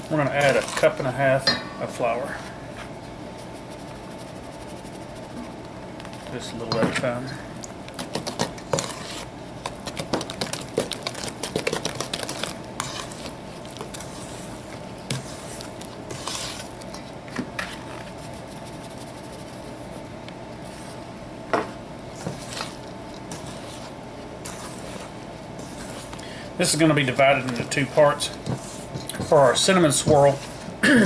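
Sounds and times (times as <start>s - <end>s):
wooden spoon scraping metal bowl: 0.1s - 1.4s, 8.0s - 19.6s, 22.2s - 30.8s.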